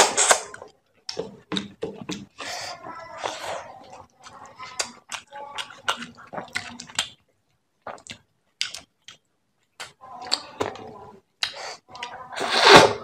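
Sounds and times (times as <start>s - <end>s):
chewing with lip smacks: 3.2s - 7.2s.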